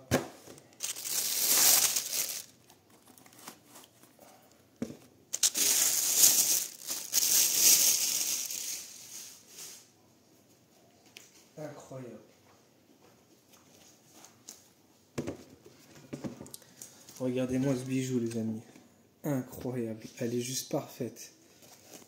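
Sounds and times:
plastic bag crinkling: 0.6 - 4.1, 5.3 - 9.8.

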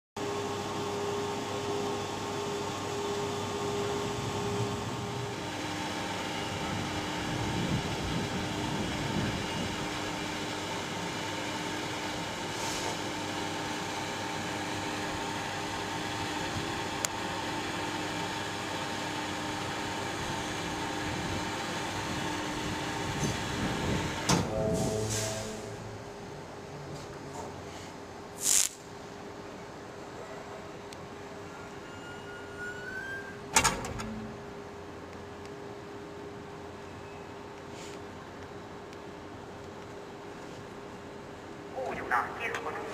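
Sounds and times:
locomotive fan whir and hum: 0.2 - 28.3.

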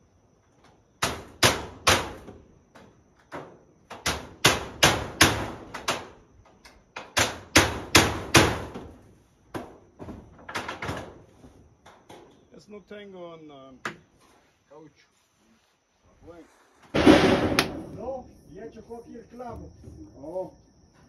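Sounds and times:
hammer nailing metal roofing: 1.0 - 11.2, 17.0 - 18.0.

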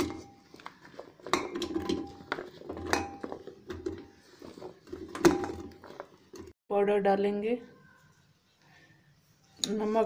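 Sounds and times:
vegetables clattering into metal pot: 0.0 - 6.5.

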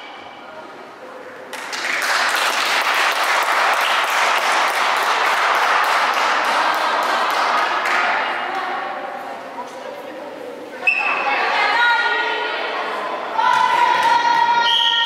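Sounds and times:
crowd clapping and cheering: 1.5 - 8.8.

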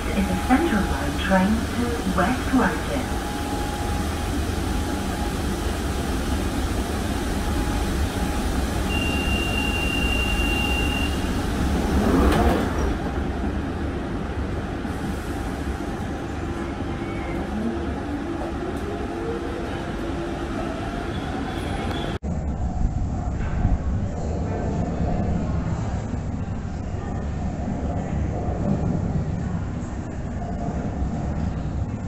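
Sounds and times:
train doors closing: 0.0 - 13.4
train door warning tone: 7.7 - 11.6.

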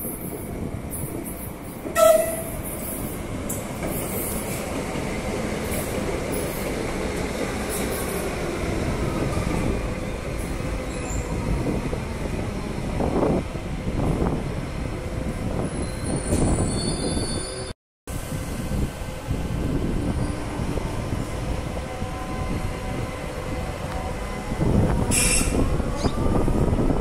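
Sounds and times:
train wheels rumbling on rails: 0.0 - 27.0
train horn blast: 2.0 - 2.6, 21.8 - 26.1.

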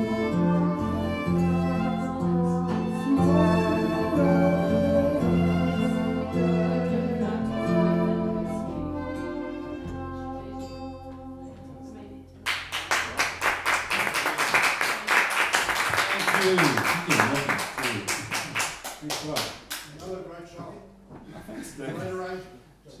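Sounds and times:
acoustic band playing: 0.0 - 13.8
audience clapping: 12.4 - 20.1.

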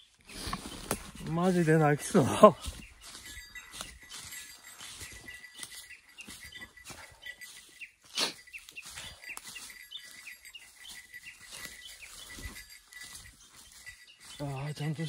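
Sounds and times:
birds chirping: 0.0 - 15.0
footsteps on forest trail: 0.0 - 15.0.

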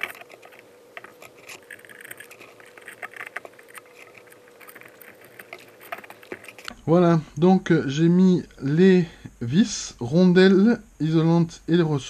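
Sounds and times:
clicks and scrapes of small metal parts: 0.0 - 6.8
faint steady hum: 0.0 - 12.0.

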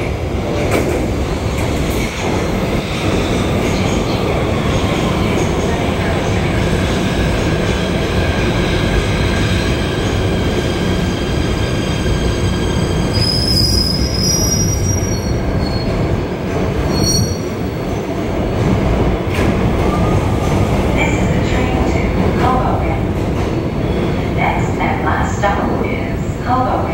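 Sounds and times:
subway train rumbling on rails: 0.0 - 26.9
wheels and brakes squealing: 12.6 - 16.0, 16.9 - 17.6.

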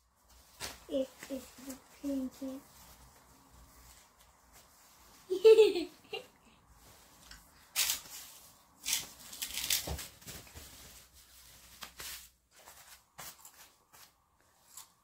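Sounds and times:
diaper crinkling: 7.7 - 11.0.

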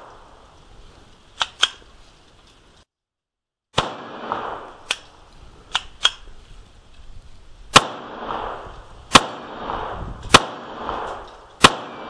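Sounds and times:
pistol shots: 3.8 - 5.0, 7.7 - 12.0.

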